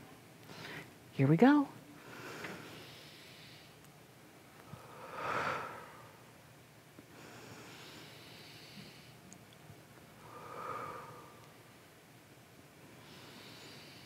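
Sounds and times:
woman breathing deeply: 0.5s - 1.0s, 2.0s - 3.8s, 4.6s - 6.3s, 7.1s - 9.2s, 10.1s - 11.8s, 12.9s - 14.0s.

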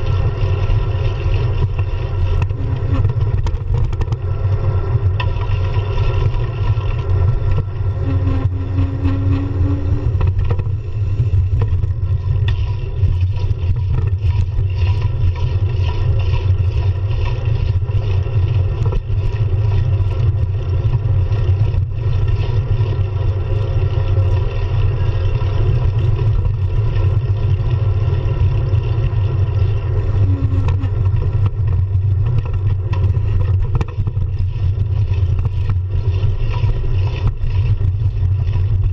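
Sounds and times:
road vibration: 0.0s - 38.9s
wind rumble: 0.0s - 38.9s
short low tone: 7.6s - 10.4s, 30.0s - 31.3s.

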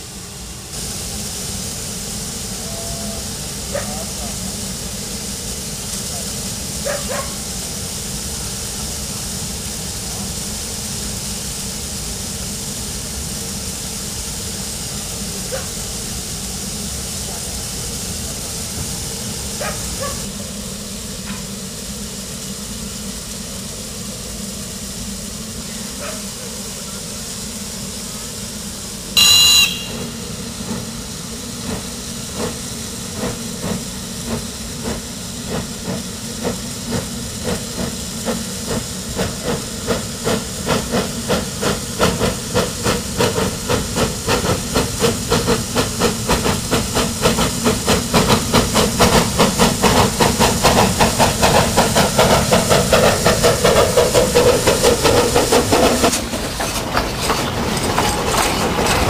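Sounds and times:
steam hissing: 0.0s - 59.0s
steam whistle blast: 2.5s - 3.4s, 29.2s - 30.5s.

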